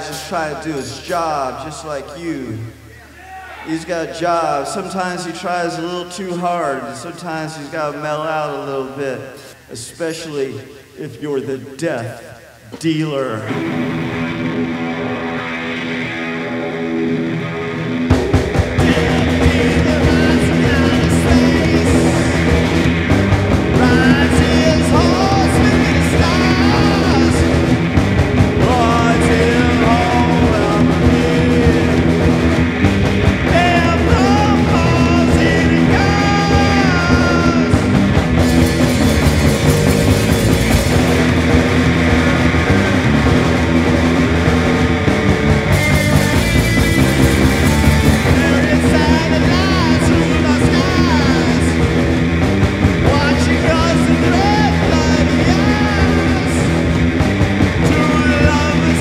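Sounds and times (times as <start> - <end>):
drum kit: 0.0 - 1.9, 13.5 - 59.0
bass guitar: 13.4 - 59.0
electric guitar: 13.4 - 59.0.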